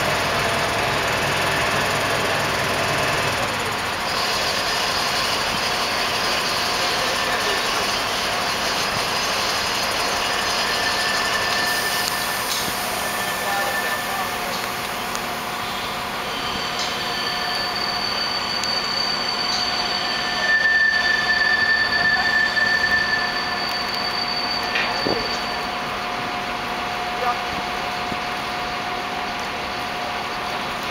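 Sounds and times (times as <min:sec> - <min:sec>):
loud low squeal: 0:00.0 - 0:27.2
diesel engines running: 0:00.0 - 0:30.9
thin high whine: 0:04.0 - 0:27.3.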